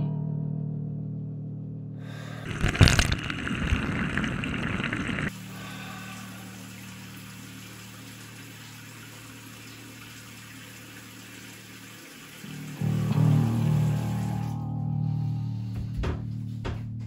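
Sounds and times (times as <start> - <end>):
water splashing into sink: 2.2 - 12.9.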